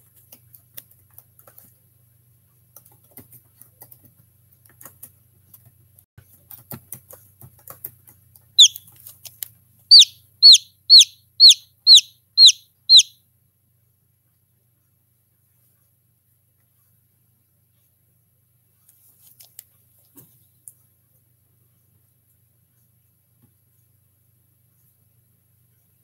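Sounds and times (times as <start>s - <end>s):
chick peeping: 8.6s - 8.9s, 9.9s - 13.2s.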